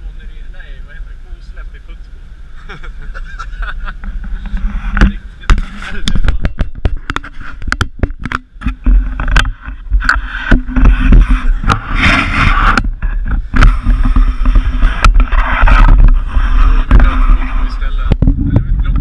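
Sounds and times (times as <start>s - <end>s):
road and engine rumble: 0.0s - 19.0s.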